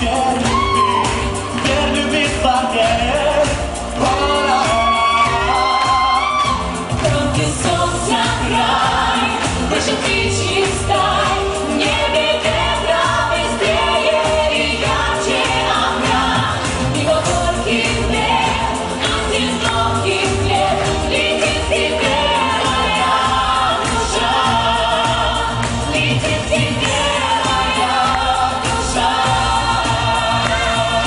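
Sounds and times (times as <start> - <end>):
man and women singing: 0.0 - 31.0.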